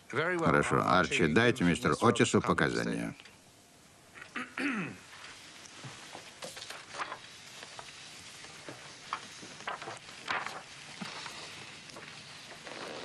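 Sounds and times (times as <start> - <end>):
papers rustling: 5.1 - 13.0.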